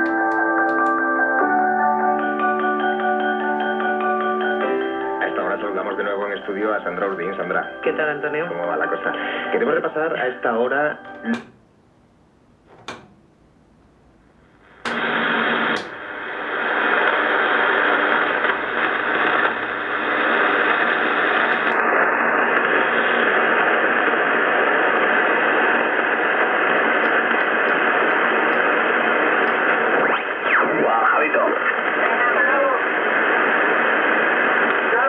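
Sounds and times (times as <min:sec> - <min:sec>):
clicks: 0:00.0 - 0:01.0, 0:11.1 - 0:11.7, 0:12.7 - 0:13.2, 0:14.8 - 0:15.1, 0:15.7 - 0:16.0, 0:27.0 - 0:28.7, 0:29.4 - 0:29.7
radio static hiss: 0:04.5 - 0:11.6, 0:14.4 - 0:35.0.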